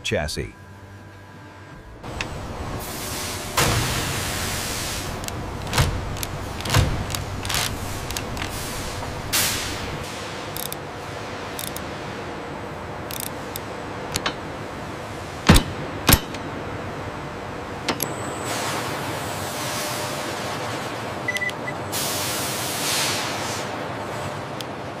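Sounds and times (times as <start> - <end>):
workshop hum: 0.0 - 25.0
metallic tool clicks and clanks: 10.5 - 10.8, 11.6 - 11.8, 13.1 - 14.4.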